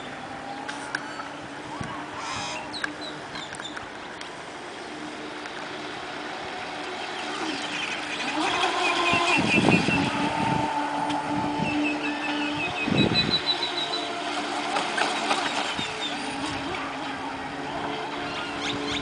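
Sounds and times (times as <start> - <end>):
birds chirping faintly: 0.0 - 10.3, 11.6 - 14.2
electric motor whining: 4.7 - 19.0.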